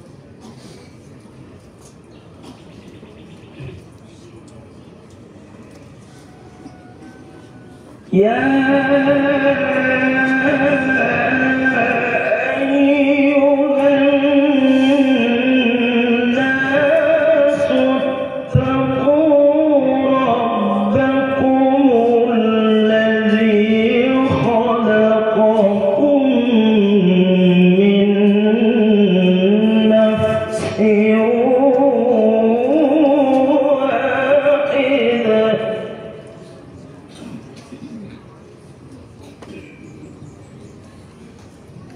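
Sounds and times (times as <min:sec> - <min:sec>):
man chanting melodically: 0:06.8 - 0:36.6.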